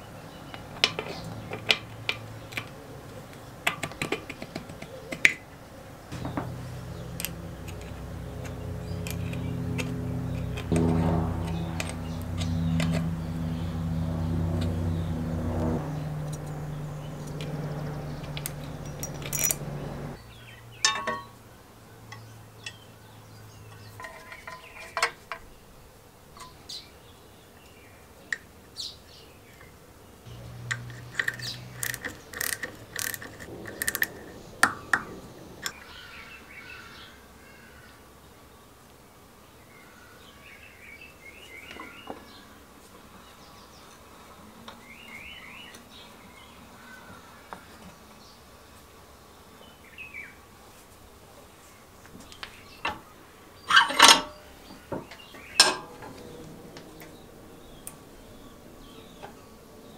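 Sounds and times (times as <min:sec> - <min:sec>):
low machine hum: 0:05.9 - 0:22.6, 0:30.3 - 0:36.0
spanner and bolts clicking: 0:06.2 - 0:13.1, 0:15.6 - 0:20.2, 0:30.6 - 0:34.2.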